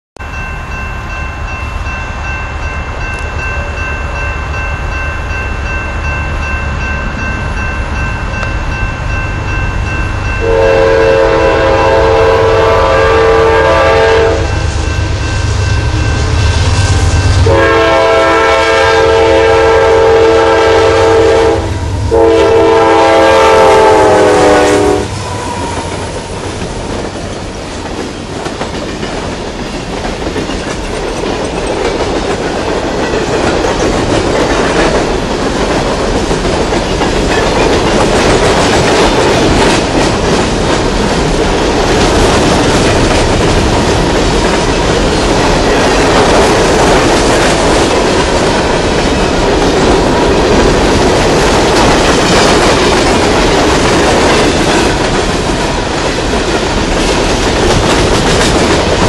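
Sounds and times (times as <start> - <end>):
locomotive air horn blasts: 10.4 - 14.7, 17.4 - 25.9
train wheels clattering on rails: 23.4 - 59.0.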